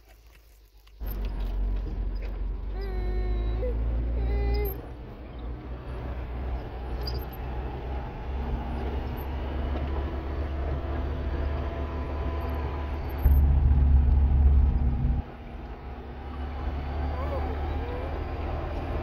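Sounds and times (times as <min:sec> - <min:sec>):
road rumble: 0:00.0 - 0:19.0
truck engine running: 0:01.0 - 0:19.0.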